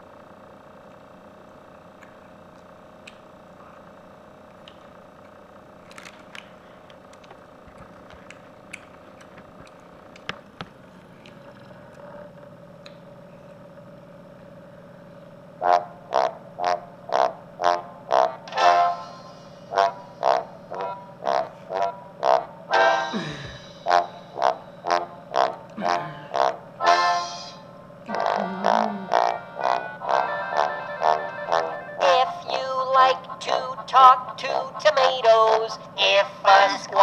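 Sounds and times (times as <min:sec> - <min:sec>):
steady low hum: 0:00.0 - 0:37.0
light clicks and clatter: 0:04.6 - 0:12.1
honking musical notes: 0:15.6 - 0:37.0.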